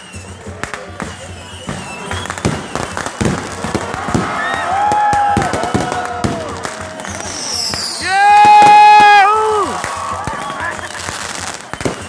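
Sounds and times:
firework whistle: 0:00.0 - 0:12.0
fireworks crackling and banging: 0:00.0 - 0:12.0.

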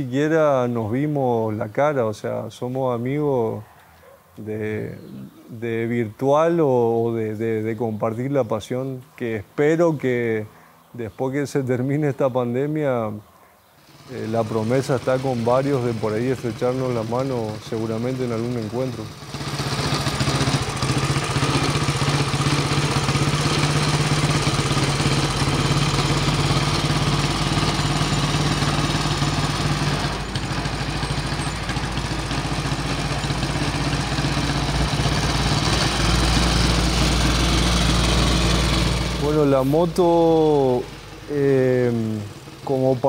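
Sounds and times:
motorcycle engine running: 0:13.8 - 0:43.0.

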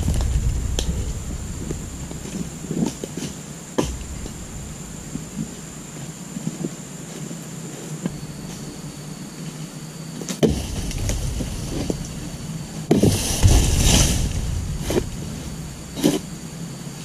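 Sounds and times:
frond rustling and cracking: 0:00.0 - 0:06.1, 0:10.5 - 0:16.6
chisel chopping palm frond: 0:01.7 - 0:05.6, 0:10.4 - 0:16.4.

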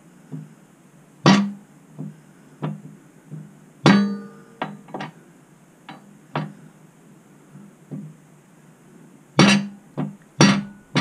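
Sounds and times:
hammer striking steel: 0:01.3 - 0:01.6, 0:03.9 - 0:04.8, 0:09.4 - 0:09.8, 0:10.4 - 0:11.0
metallic ring: 0:03.9 - 0:04.9, 0:10.4 - 0:11.0.

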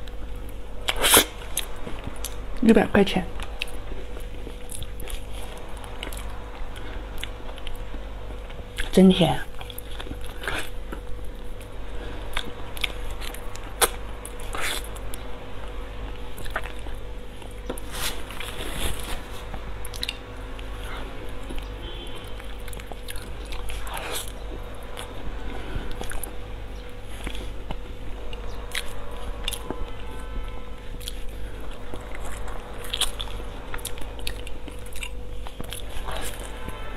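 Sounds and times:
steady low hum: 0:00.0 - 0:36.9
wet chewing and lip smacks: 0:19.8 - 0:21.7.

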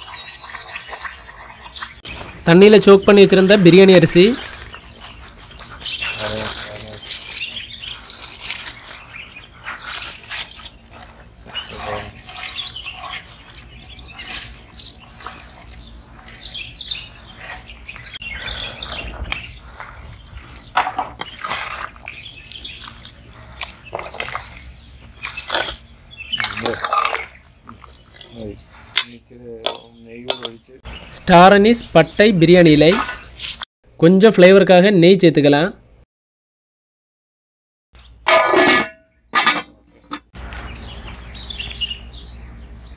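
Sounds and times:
ladle stirring in metal pot: 0:00.0 - 0:02.2, 0:04.4 - 0:30.7, 0:38.3 - 0:40.3
liquid bubbling: 0:10.1 - 0:29.0.

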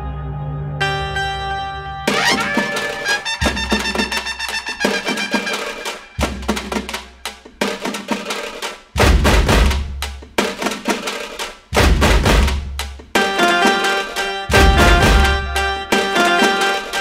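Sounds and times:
sustained melodic tones: 0:00.0 - 0:06.8, 0:13.2 - 0:17.0
fast drum beat: 0:02.2 - 0:13.2, 0:14.5 - 0:16.2
deep bass hits: 0:09.0 - 0:10.1, 0:11.8 - 0:12.8.

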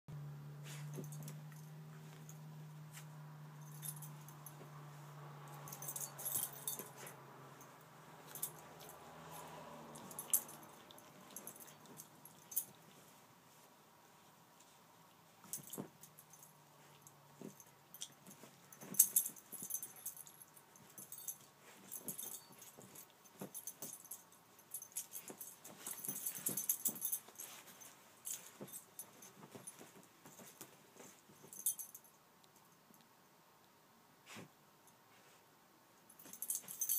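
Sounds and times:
dog digging in blankets: 0:00.6 - 0:24.0, 0:24.6 - 0:31.5
light jingling clicks: 0:05.4 - 0:13.0, 0:15.4 - 0:33.1, 0:36.1 - 0:36.9.

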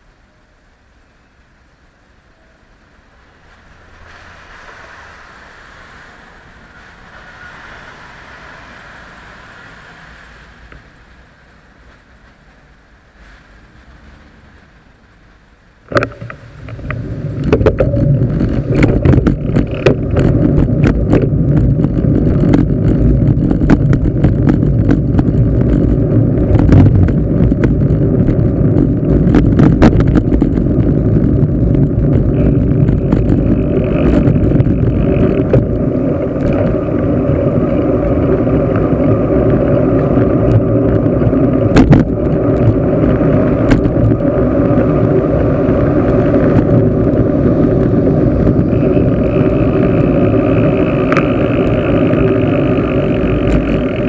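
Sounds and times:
bicycle road rumble and rattle: 0:00.0 - 0:54.0
sharp clicks and knocks: 0:15.9 - 0:37.1, 0:38.7 - 0:45.0
wind buffeting microphone: 0:15.9 - 0:54.0.

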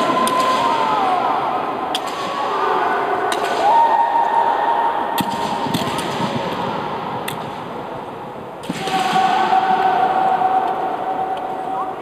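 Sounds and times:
long echoing shouts: 0:00.0 - 0:06.1, 0:08.7 - 0:12.0
bamboo swords striking: 0:01.8 - 0:02.7, 0:03.3 - 0:03.8, 0:08.6 - 0:09.6.

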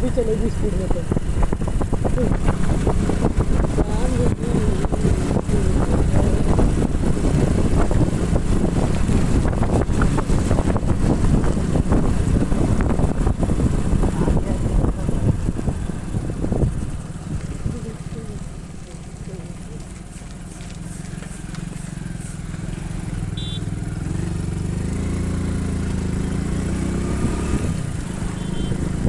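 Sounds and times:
wind rushing over microphone: 0:00.0 - 0:18.2, 0:24.9 - 0:29.0
motorcycle engine running: 0:00.0 - 0:29.0.

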